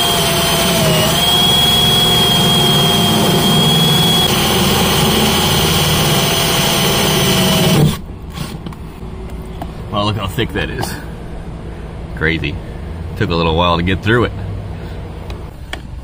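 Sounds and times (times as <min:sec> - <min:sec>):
cordless drill motor whining: 0:00.0 - 0:08.5.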